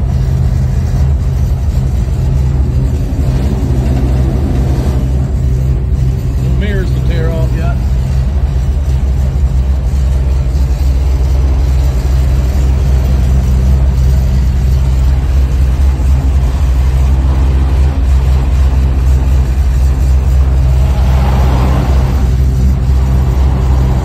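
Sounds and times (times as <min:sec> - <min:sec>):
car engine idling: 0:00.0 - 0:24.0
car wash brushes: 0:00.0 - 0:24.0
car wash water spray hissing: 0:14.8 - 0:24.0.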